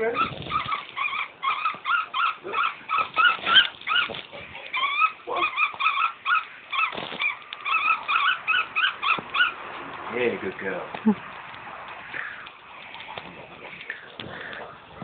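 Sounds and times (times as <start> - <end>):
kestrel whining calls: 0.1 - 9.6.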